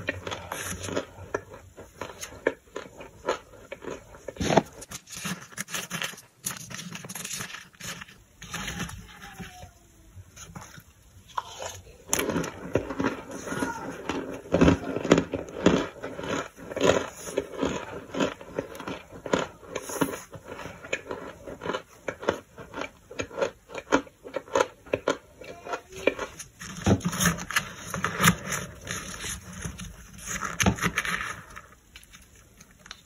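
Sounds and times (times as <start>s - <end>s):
toasted chunks crunching and squeaking: 0.0s - 33.0s.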